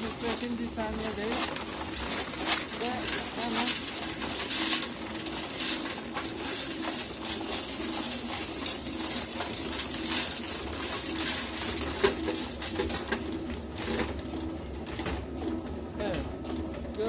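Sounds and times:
livestock feed pouring and rustling: 0.1s - 12.6s.

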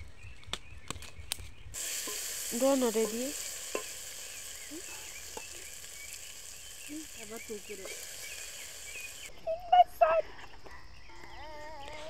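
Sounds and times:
pot sizzling over fire: 1.7s - 9.3s
wooden spoon stirring pot: 1.8s - 4.0s.

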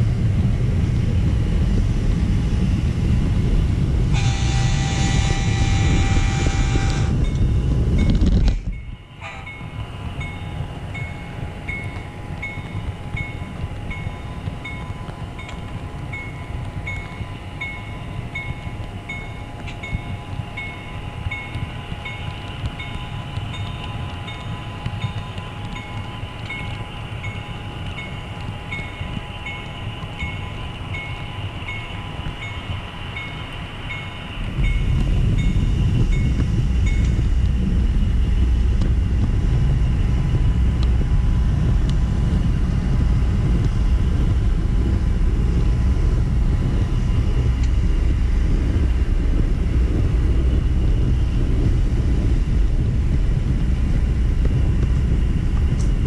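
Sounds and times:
model train rumbling: 0.0s - 56.0s
train rolling with light clicks: 0.0s - 56.0s
train horn blast: 4.1s - 7.7s, 9.1s - 9.8s.

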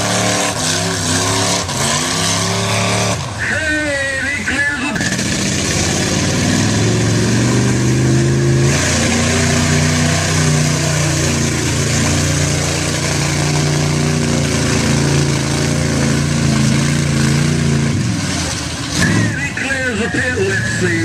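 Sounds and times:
pickup truck engines revving: 0.0s - 21.0s.

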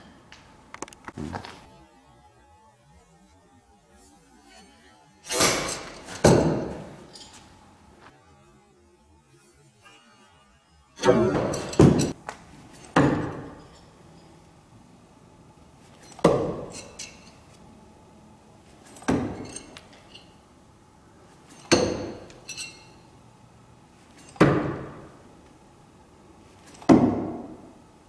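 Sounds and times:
faint metal clinks: 18.8s - 20.4s, 21.4s - 23.1s
knives striking a target: 21.5s - 22.4s.

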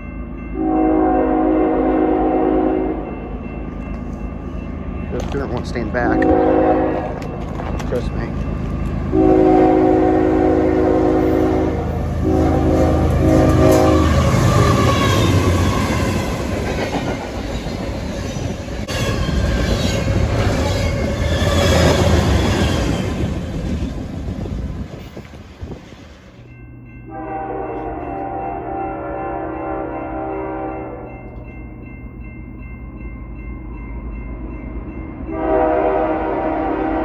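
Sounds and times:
freight train rumbling past: 0.0s - 37.0s
locomotive horn blasting: 0.6s - 3.1s, 6.0s - 7.2s, 9.1s - 15.9s, 27.1s - 31.1s, 35.3s - 37.0s
long train horn blast: 0.6s - 3.2s, 6.0s - 7.2s, 9.1s - 16.2s, 27.1s - 31.1s, 35.3s - 37.0s
wheels clattering on rail: 5.0s - 9.2s.

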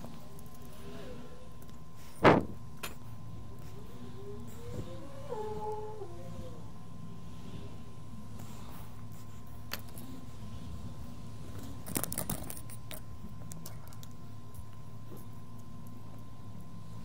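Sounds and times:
low electrical hum: 0.0s - 17.0s
metal tools clicking and rattling: 11.8s - 13.0s.

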